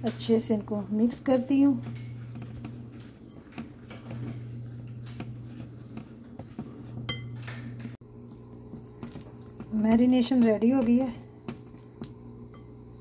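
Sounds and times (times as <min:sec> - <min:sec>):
spatula stirring thick paste: 0:00.0 - 0:07.3, 0:08.2 - 0:12.2
steady low hum: 0:00.0 - 0:13.0
spatula scraping glass bowl: 0:00.2 - 0:07.3.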